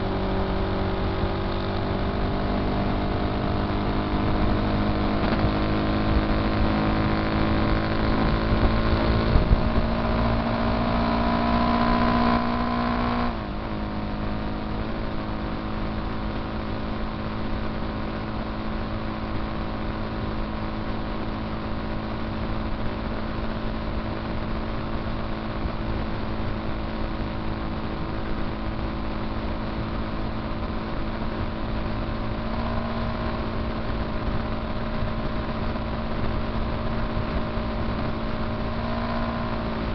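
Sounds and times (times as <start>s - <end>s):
motorcycle engine running: 0.0s - 39.9s
wind rushing on microphone: 6.1s - 10.2s.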